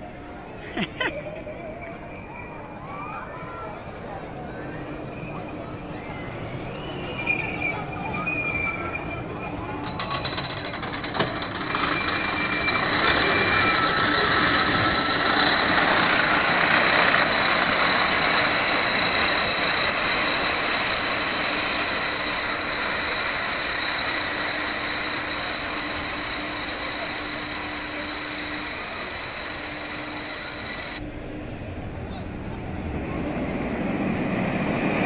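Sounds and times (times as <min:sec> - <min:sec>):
roller coaster train on track: 0:00.0 - 0:35.0.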